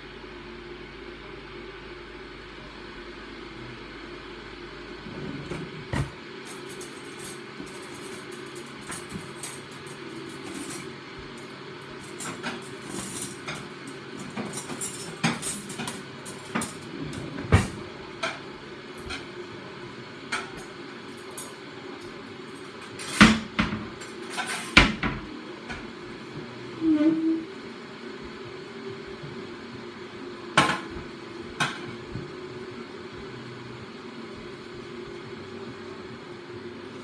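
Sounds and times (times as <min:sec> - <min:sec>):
kitchen things knocking and clicking: 0:23.2 - 0:25.8.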